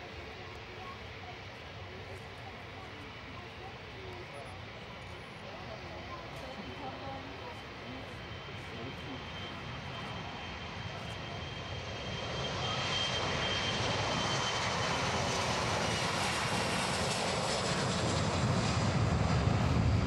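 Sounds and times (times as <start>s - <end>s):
jet engines rushing and whining: 4.6s - 20.0s.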